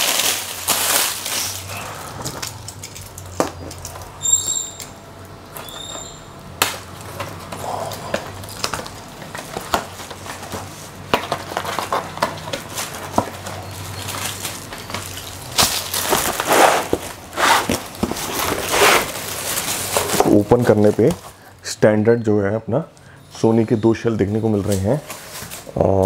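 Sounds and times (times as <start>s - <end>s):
plastic shrink-wrap being cut: 0.0s - 3.2s, 11.7s - 21.2s
plastic film crinkling: 0.0s - 4.1s, 6.6s - 21.5s, 24.3s - 26.0s.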